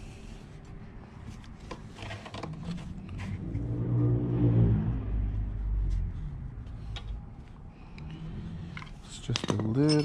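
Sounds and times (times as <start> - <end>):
passing vehicle engine hum: 2.6 - 9.0.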